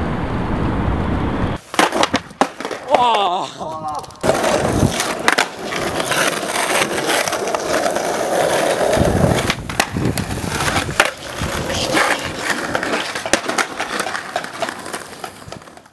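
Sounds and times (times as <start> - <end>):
skateboard wheels rolling on asphalt: 0.4 - 15.9
skateboard clacks: 1.7 - 3.2, 3.9 - 15.9.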